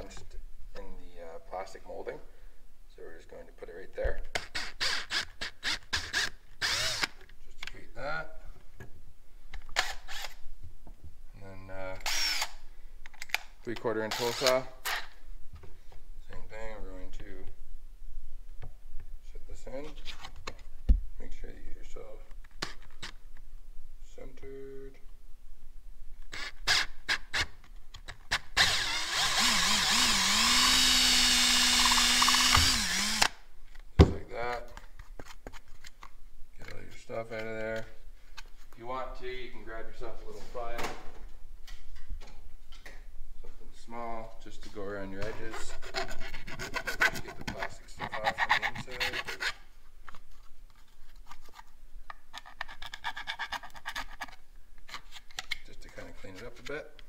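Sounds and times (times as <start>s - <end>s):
drill hole saw cutting plastic: 4.4s - 7.2s, 12.0s - 12.6s, 28.3s - 33.4s
file scraping plastic: 45.2s - 49.6s, 52.3s - 55.5s.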